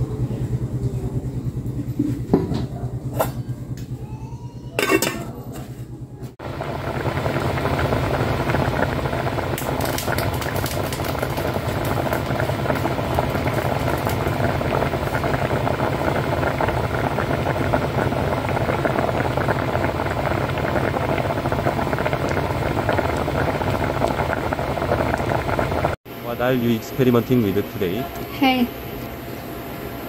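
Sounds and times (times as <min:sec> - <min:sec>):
rice boiling in a pot: 0:06.3 - 0:30.0.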